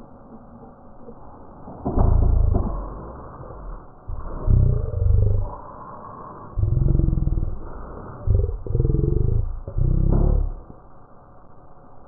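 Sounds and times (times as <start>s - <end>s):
dog growling low: 1.9s - 5.8s, 6.5s - 10.8s.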